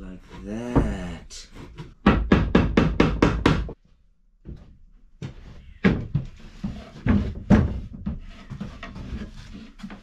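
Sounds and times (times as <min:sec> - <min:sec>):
hammer striking nail: 0:02.0 - 0:03.8
wooden box knocks and bumps: 0:04.4 - 0:08.9.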